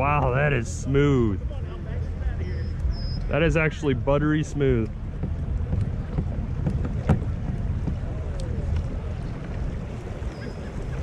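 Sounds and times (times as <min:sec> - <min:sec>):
water swishing along kayak hull: 0:00.0 - 0:11.0
wind buffeting microphone: 0:00.0 - 0:11.0.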